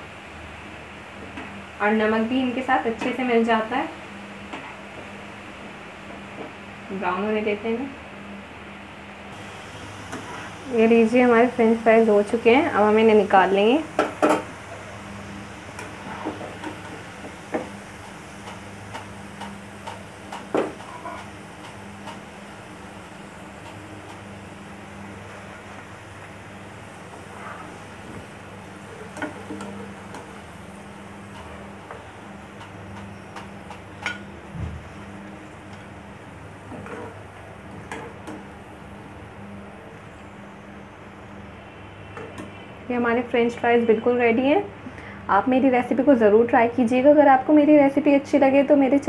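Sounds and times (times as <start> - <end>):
steady low hum: 0.0 - 43.9
oil sizzling: 9.3 - 42.9.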